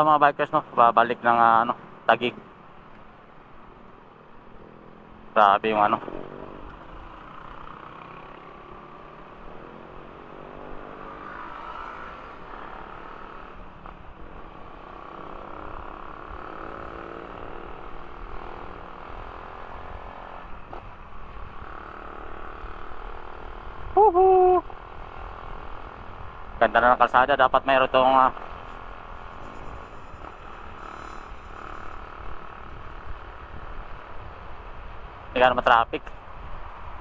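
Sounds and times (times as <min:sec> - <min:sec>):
wind and road noise: 0:00.0 - 0:37.0
motorcycle engine revving: 0:05.8 - 0:24.0, 0:28.0 - 0:34.3.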